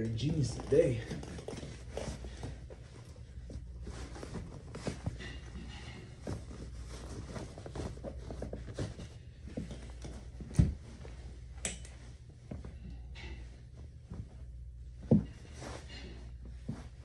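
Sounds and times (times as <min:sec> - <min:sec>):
denim and leather rustling: 0:00.0 - 0:12.8.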